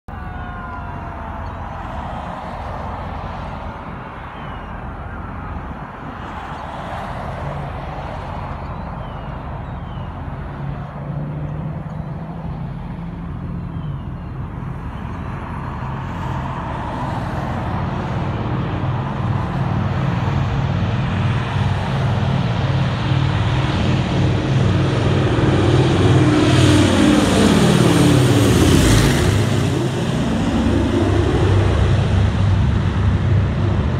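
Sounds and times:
propeller aircraft engines droning: 0.1 - 33.9.

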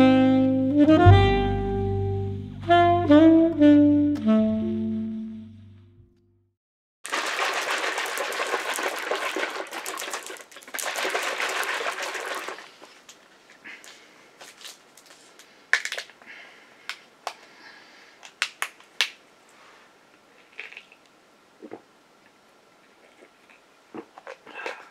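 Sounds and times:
crackling handling rustle: 12.4 - 16.1.

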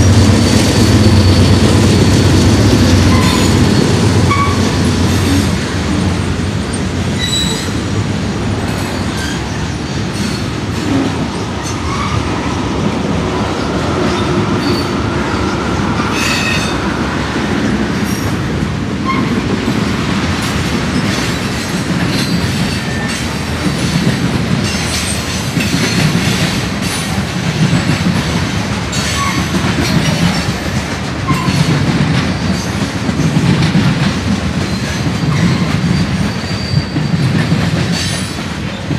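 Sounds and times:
steel wheels rumbling on rails: 0.0 - 38.9
clanks at rail joints: 19.0 - 38.9.

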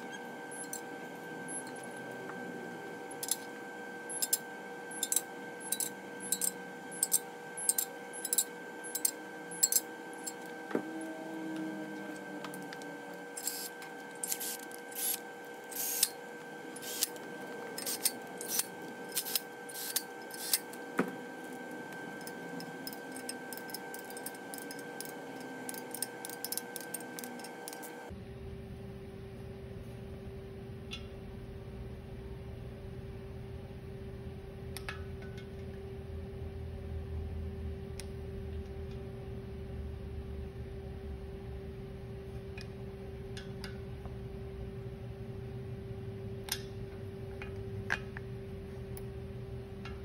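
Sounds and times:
faint steady hum: 0.0 - 50.0
cordless power tool spinning bolts: 4.1 - 28.1.

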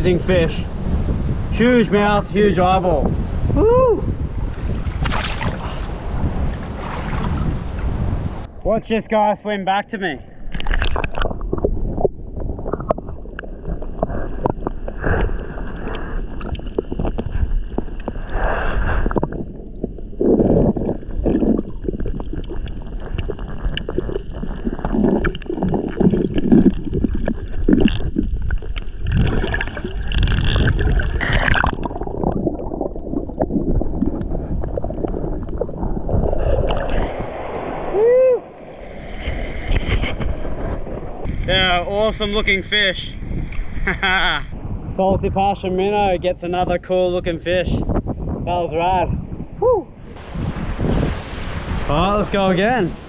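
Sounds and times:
underwater water gurgling: 10.3 - 41.3
small underwater clicks and knocks: 10.5 - 18.3.

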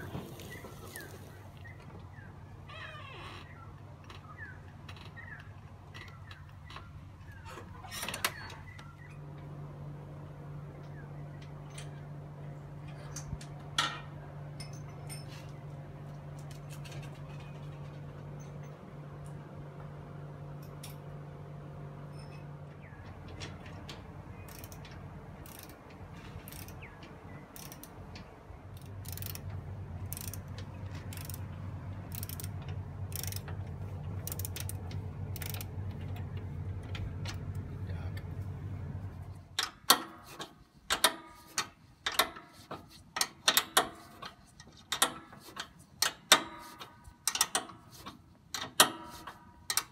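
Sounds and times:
steady low hum: 3.4 - 49.9
ratchet wrench clicking: 24.5 - 25.8, 26.4 - 26.8, 27.5 - 28.0, 28.8 - 30.5, 31.1 - 31.4, 32.1 - 33.6, 34.2 - 35.7.

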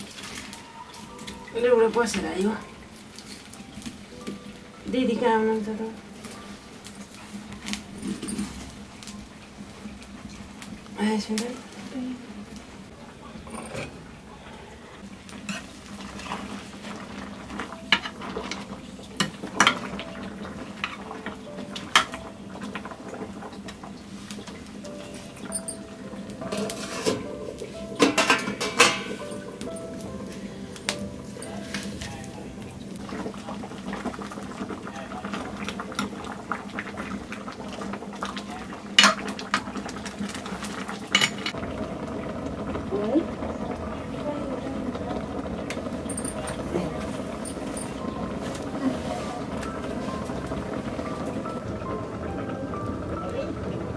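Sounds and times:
greens simmering: 0.0 - 53.9
water boiling: 0.0 - 53.9
ladle scraping metal pan: 26.5 - 27.3
ladle clinking on pan: 28.0 - 29.4.

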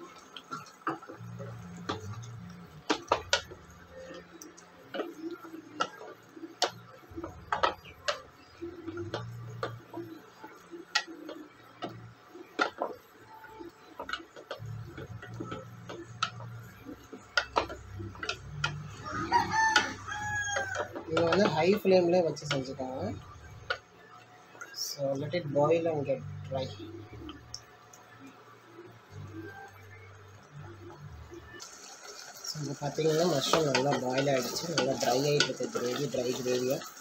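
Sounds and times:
wooden spatula scraping metal pot: 32.5 - 37.0.

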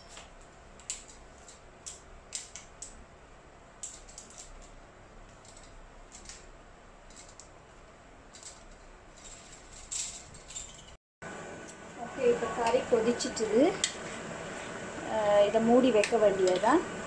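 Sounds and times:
clothespins clicking: 3.8 - 6.5.

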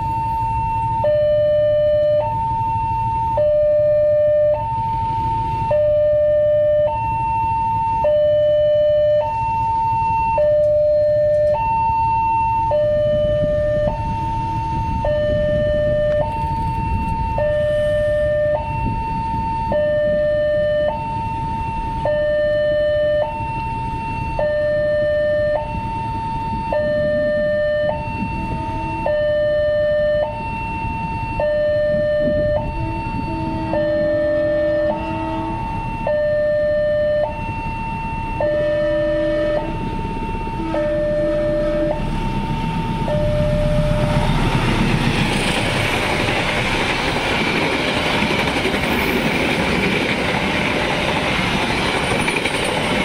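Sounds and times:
low rumble of vehicle engines: 0.0 - 53.0
deep horn-like tone: 26.8 - 30.3, 31.4 - 37.3, 38.4 - 45.6.

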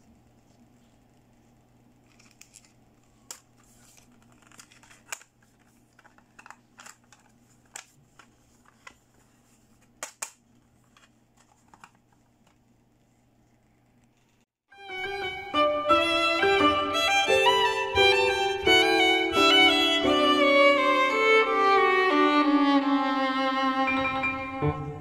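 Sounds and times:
plastic compacts clicking: 4.2 - 7.9.

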